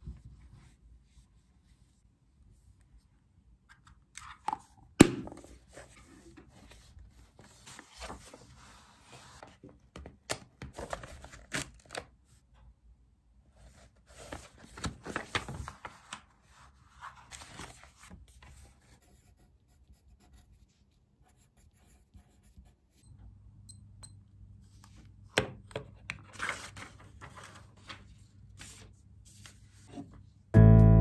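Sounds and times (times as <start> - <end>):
paper rustling: 6.6 - 9.8, 10.7 - 12.1, 13.6 - 18.7, 26.3 - 29.9.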